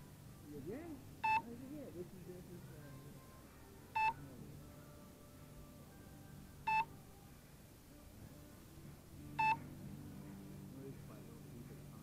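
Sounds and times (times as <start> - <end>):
faint low hum: 0.0 - 12.0.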